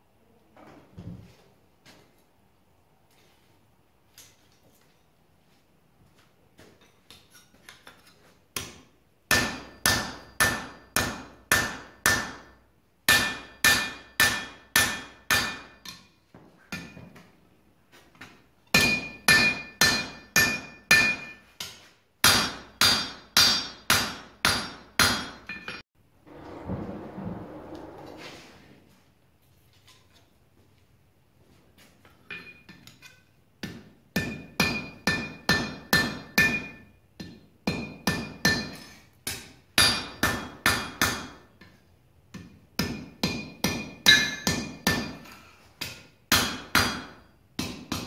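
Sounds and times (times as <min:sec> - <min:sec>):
hammer striking iron on anvil: 0:08.6 - 0:16.1, 0:18.7 - 0:25.8, 0:33.6 - 0:48.0
forge bellows rush of air: 0:26.2 - 0:28.8.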